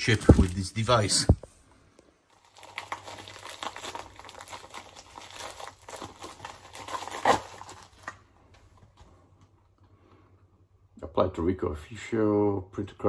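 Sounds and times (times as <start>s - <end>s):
plastic packaging crinkling: 0.0s - 1.2s, 2.3s - 9.0s.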